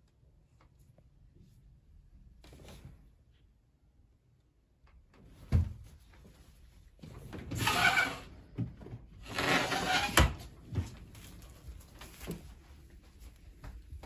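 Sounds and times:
wardrobe door sliding: 7.2s - 8.4s, 9.2s - 10.6s.

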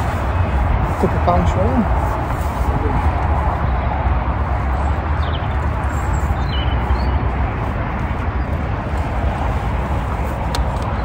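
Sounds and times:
distant motorway traffic: 0.0s - 11.0s
wind on microphone: 0.0s - 11.0s.

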